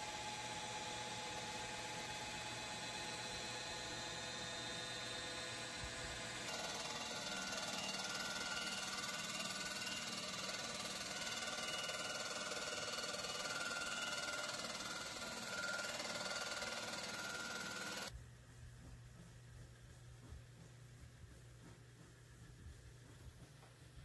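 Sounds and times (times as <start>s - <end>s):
surfacing machine whine and hum: 0.0s - 18.2s.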